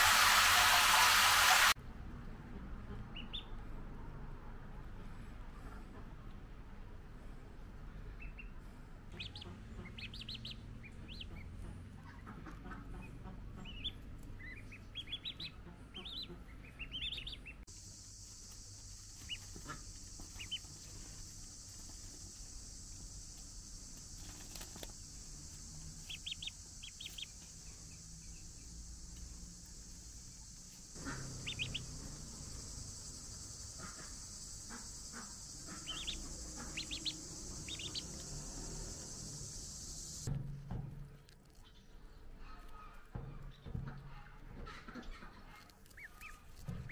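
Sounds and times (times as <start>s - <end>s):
steady high hiss: 0.0s - 1.8s, 17.7s - 40.3s
ducklings peeping: 2.9s - 3.8s, 7.9s - 22.6s, 26.0s - 40.3s, 41.4s - 46.9s.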